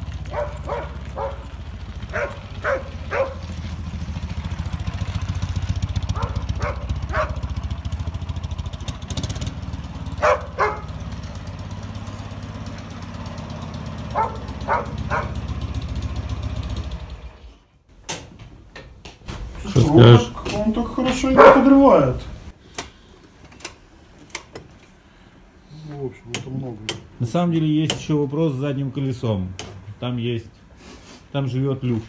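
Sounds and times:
motorcycle engine running: 0.0s - 17.5s
dog barking: 0.2s - 3.6s, 6.1s - 7.6s, 10.1s - 11.0s, 14.1s - 15.5s, 21.1s - 22.2s.

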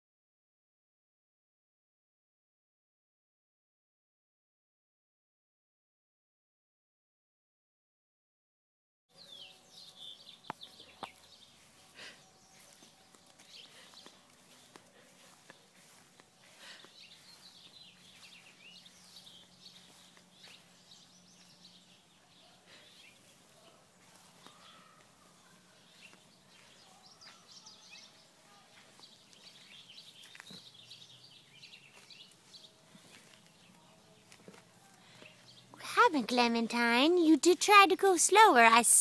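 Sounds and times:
bird chirps: 9.1s - 35.8s.

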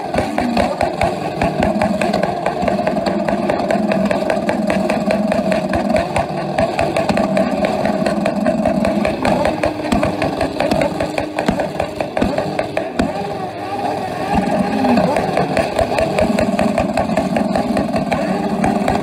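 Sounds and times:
motorcycle engines on rev limiter: 0.0s - 19.0s.

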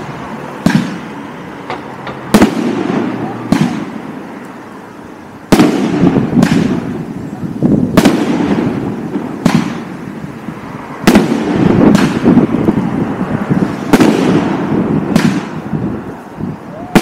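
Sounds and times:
firework shells bursting: 5.4s - 7.2s, 7.9s - 10.1s, 10.9s - 12.8s.

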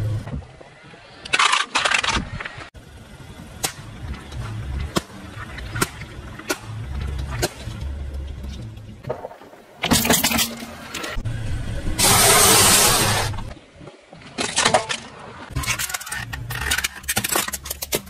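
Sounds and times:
car engine rumble: 0.0s - 13.8s.

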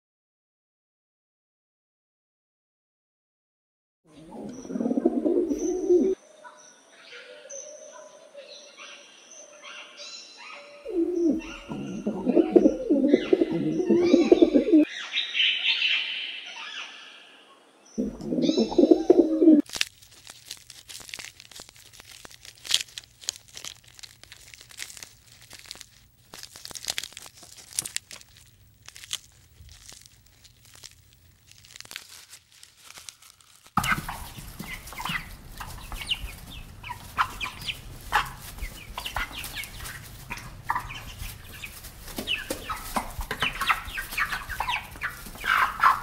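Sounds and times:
dove cooing: 4.1s - 6.2s, 10.8s - 14.9s, 18.0s - 19.6s
bird chirps: 4.1s - 19.6s
clicks and crackles: 19.6s - 36.2s.

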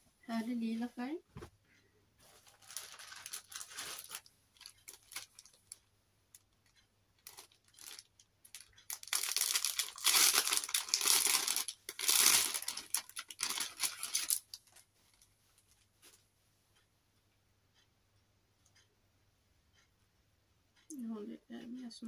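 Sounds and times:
plastic bag crinkling and tearing: 2.4s - 5.8s, 7.2s - 14.8s.

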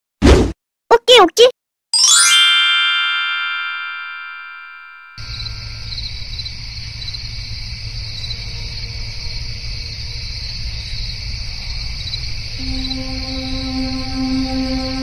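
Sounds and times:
ringing chime: 2.0s - 6.0s
crickets chirping: 5.2s - 15.0s.

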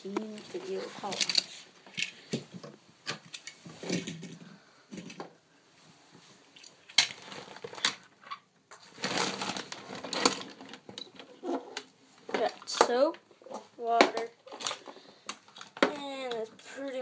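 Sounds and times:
rustling: 0.0s - 17.0s
small hard objects clattering: 0.1s - 2.4s, 6.8s - 16.7s.

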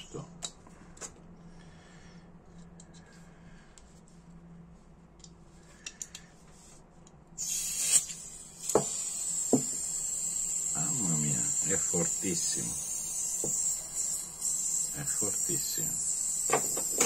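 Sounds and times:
gas hissing with high whistle: 7.4s - 17.0s.

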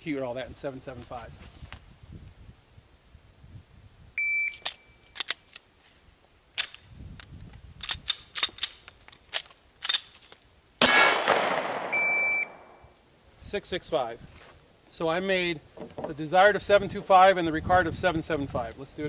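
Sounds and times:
shot timer beep: 4.2s - 5.0s, 11.8s - 13.0s
gun metallic clacks: 7.8s - 11.9s
gunshot: 10.8s - 12.8s.

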